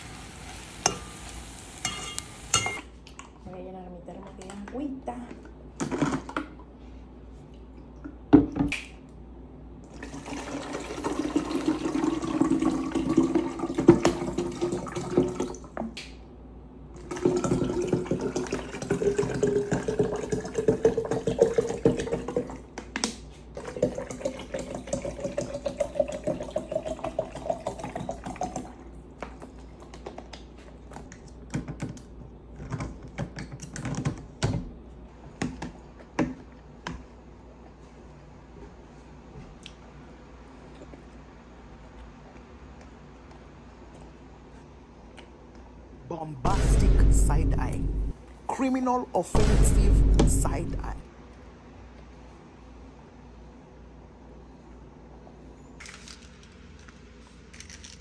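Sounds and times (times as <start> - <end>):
water filling plastic jug: 9.9 - 15.7, 17.0 - 22.6, 23.6 - 28.8.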